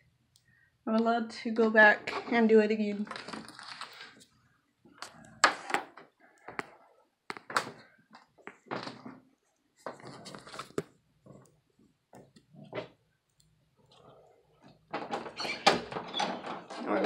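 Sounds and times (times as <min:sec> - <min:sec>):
things being handled: 0:02.1 - 0:04.3, 0:04.9 - 0:11.6.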